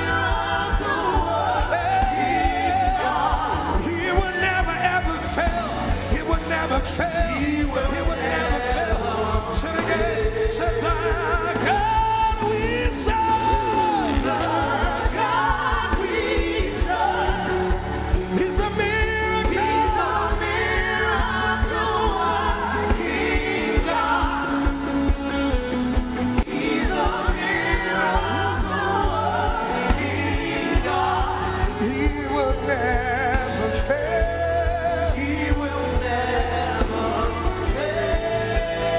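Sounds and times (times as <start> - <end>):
gospel worship band: 0.0 - 38.9.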